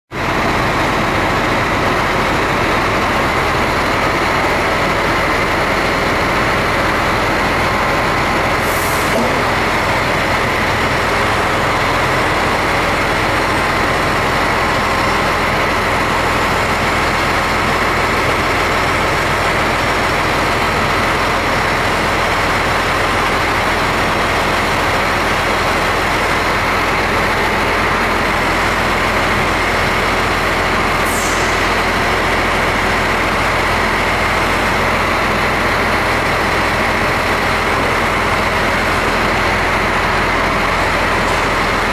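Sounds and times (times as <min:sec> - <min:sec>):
heavy engine running: 0:00.1 - 0:41.9.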